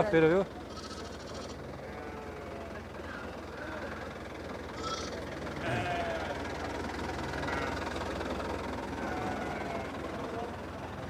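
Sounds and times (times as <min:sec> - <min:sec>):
distant crowd chatter: 0:00.0 - 0:11.0
goats and sheep bleating: 0:00.7 - 0:02.8, 0:04.7 - 0:08.0, 0:08.9 - 0:10.5.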